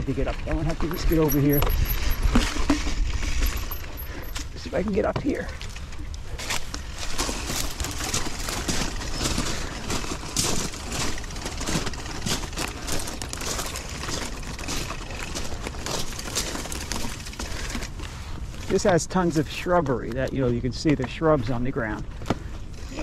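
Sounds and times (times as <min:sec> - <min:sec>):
bike tyres crunching over rocks: 0:00.0 - 0:23.0
small cracks and clatters: 0:05.3 - 0:23.0.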